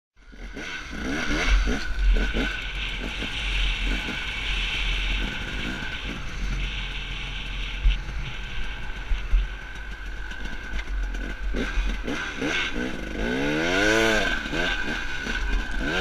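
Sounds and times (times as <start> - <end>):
dirt bike engine revving: 0.2 - 16.0
wind rumble on microphone: 1.0 - 12.1.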